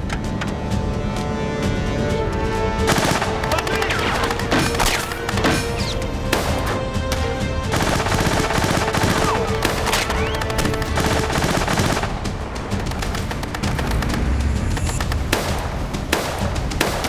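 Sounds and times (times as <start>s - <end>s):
film score music: 0.0s - 17.0s
automatic gunfire bursts: 2.9s - 3.6s, 7.7s - 12.2s
pistol shots: 2.9s - 12.2s, 15.3s - 17.0s.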